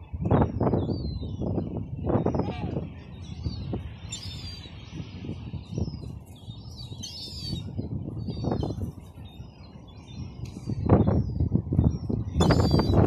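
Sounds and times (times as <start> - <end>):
gulls calling: 12.4 - 13.0.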